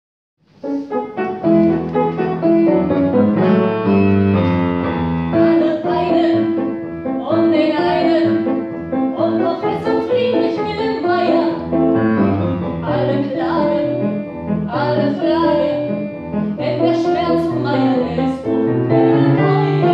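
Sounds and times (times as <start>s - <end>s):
grand piano playing: 0.4s - 19.9s
woman singing: 5.4s - 6.6s, 7.2s - 8.5s, 9.2s - 11.6s, 12.8s - 14.0s, 14.7s - 15.9s, 16.6s - 19.9s.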